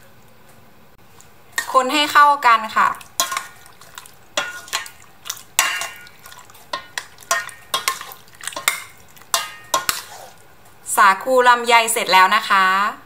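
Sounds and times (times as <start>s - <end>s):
ladle knocking and scraping a pot: 3.0s - 10.4s.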